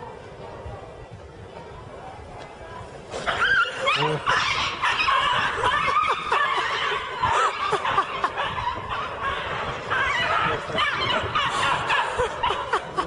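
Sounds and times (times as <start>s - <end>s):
high-pitched laughter: 3.6s - 13.0s.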